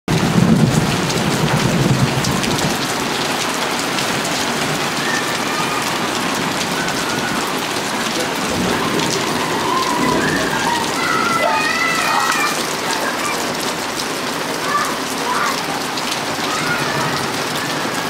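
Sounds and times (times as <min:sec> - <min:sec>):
thunder rumble: 0:00.1 - 0:12.8
steady rain: 0:00.1 - 0:18.0.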